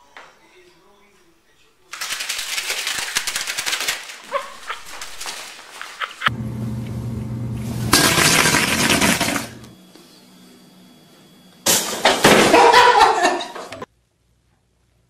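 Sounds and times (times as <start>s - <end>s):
low hum: 6.3s - 11.5s
ironing board crashing down: 11.7s - 13.0s.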